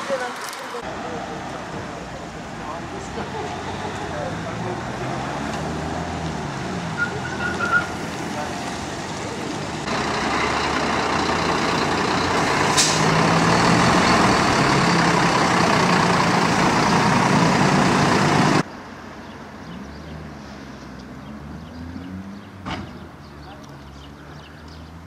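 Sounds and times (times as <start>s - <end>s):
truck diesel engine passing: 0.0s - 18.7s, 19.5s - 25.0s
short sharp hiss: 12.7s - 13.1s.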